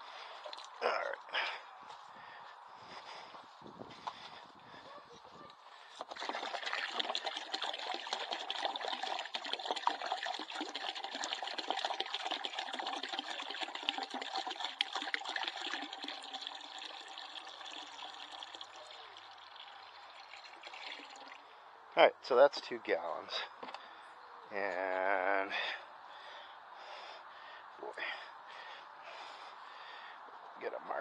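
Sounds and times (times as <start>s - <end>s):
water pouring into a bucket: 6.0s - 21.5s.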